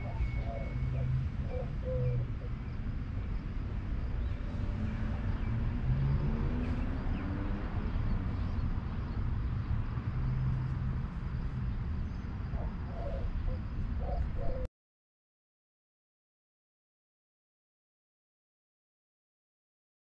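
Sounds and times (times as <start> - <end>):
faint distant road traffic: 0.0 - 14.7
wind rumbling on microphone: 0.0 - 14.7.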